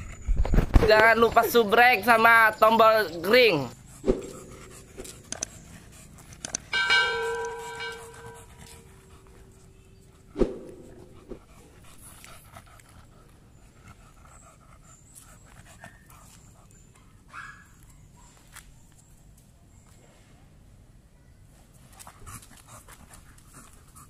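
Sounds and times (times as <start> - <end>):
dog panting: 2.7 - 17.4, 21.8 - 24.0
sharp click: 6.4 - 6.7
ringing chime: 6.8 - 8.8.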